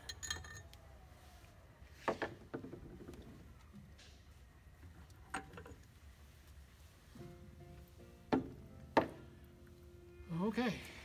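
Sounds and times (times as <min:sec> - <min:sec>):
metal parts clinking: 0:00.0 - 0:00.7.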